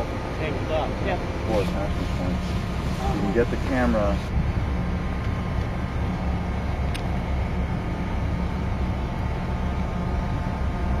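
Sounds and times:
wind buffeting microphone: 4.2 - 6.0.

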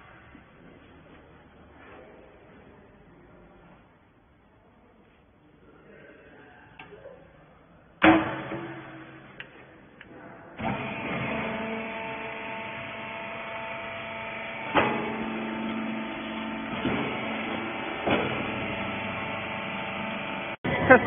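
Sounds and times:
hydraulic motor and pump hum: 8.0 - 21.0.

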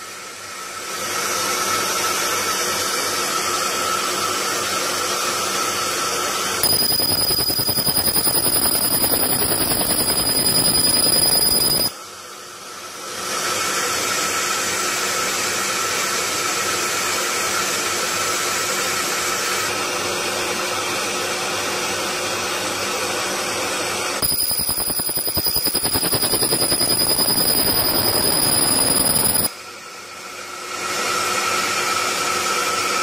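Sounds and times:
laser buzzing crackle with whine: 6.6 - 11.9, 24.2 - 29.5
machine hiss: 24.2 - 29.5.

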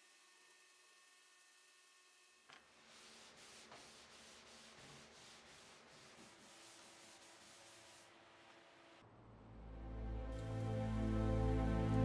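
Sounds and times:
hand rubbing on wood: 2.8 - 8.0.

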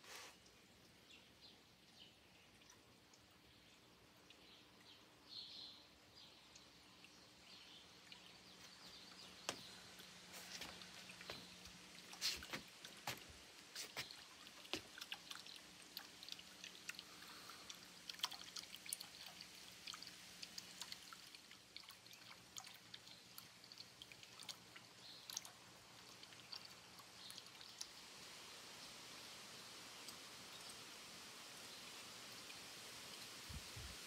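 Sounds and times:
fountain water trickling and dripping: 0.0 - 34.0.

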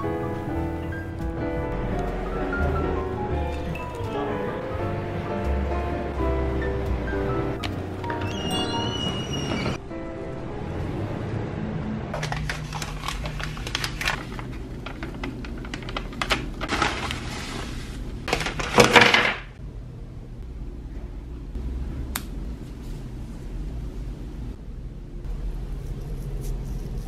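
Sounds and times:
paper bag rustling: 12.2 - 19.4.

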